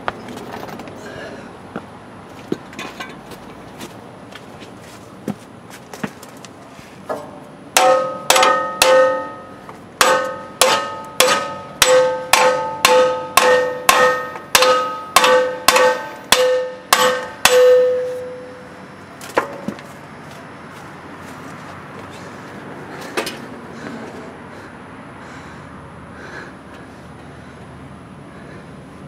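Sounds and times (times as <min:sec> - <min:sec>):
hammer striking steel plate: 0:07.1 - 0:18.8.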